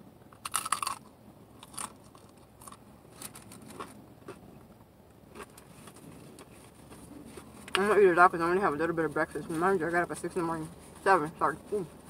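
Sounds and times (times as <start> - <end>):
biting crispy taco shell: 0.4 - 4.4
chewing with small crunches: 0.4 - 12.0.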